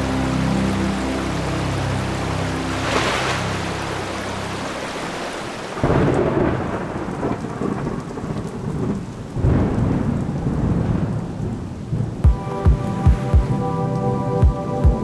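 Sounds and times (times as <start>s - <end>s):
steady rain: 0.0s - 15.0s
thunder claps rumbling: 5.5s - 13.6s.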